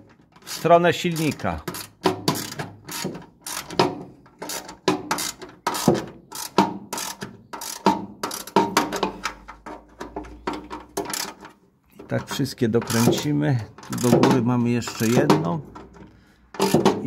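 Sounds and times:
ratchet wrench clicking: 0.4s - 3.8s, 4.4s - 8.6s, 11.0s - 11.4s, 12.8s - 13.1s.

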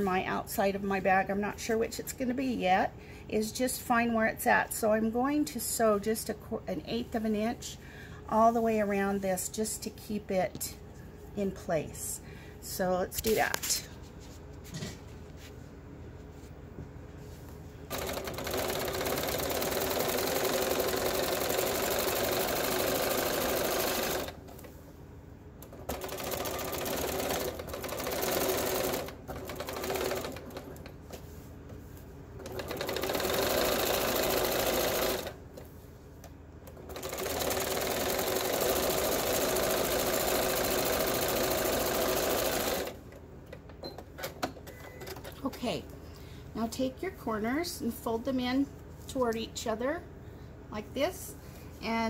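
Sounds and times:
electric sewing machine stitching: 17.9s - 24.4s, 25.8s - 30.8s, 32.4s - 35.4s, 36.8s - 43.0s.

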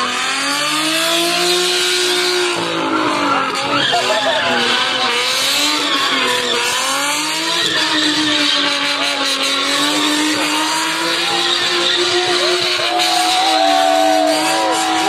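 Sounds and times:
car engine at high revs: 0.0s - 15.0s
tyres squealing on tarmac: 2.3s - 15.0s.

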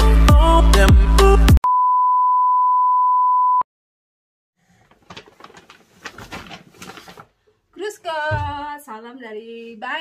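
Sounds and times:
steady electronic beep: 1.6s - 3.6s
paper bag rustling: 4.7s - 7.5s.

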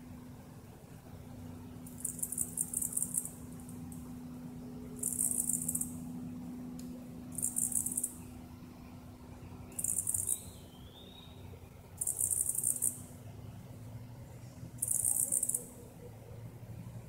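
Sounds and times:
insect buzzing trill: 1.9s - 3.4s, 5.0s - 6.0s, 7.3s - 8.2s, 9.8s - 10.4s, 12.0s - 13.0s, 14.8s - 15.7s.

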